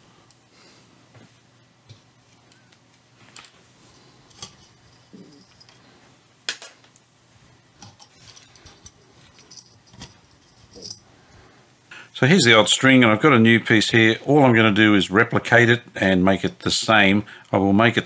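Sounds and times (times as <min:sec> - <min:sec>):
light clicks and metal rattles: 0:07.8 - 0:11.0.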